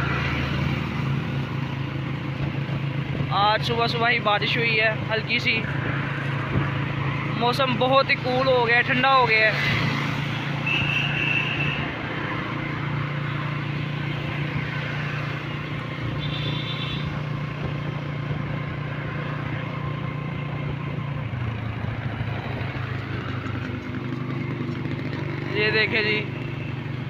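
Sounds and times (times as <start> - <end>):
wind and road noise: 0.0 - 27.0
motorcycle engine running: 12.7 - 27.0.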